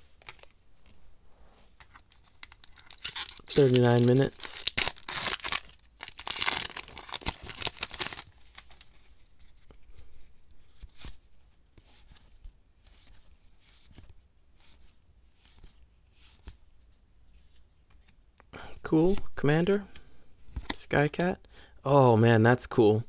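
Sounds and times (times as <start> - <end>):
foil wrapper crinkling: 2.3 - 9.0
cards being flipped: 17.5 - 18.2.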